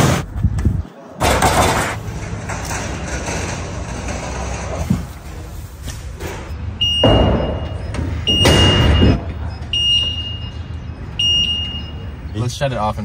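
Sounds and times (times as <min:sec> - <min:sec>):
vehicle warning beeps: 0:06.5 - 0:12.5.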